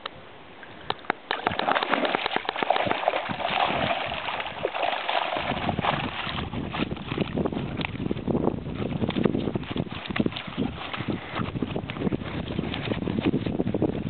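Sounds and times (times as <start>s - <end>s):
water splashing and sloshing: 0.6s - 14.0s
water pouring off net: 1.3s - 8.0s.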